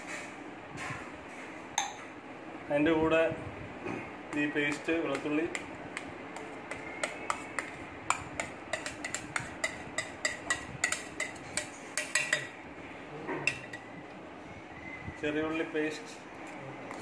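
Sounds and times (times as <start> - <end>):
metal spoon clinking on steel bowl: 6.4 - 12.6, 13.4 - 13.9.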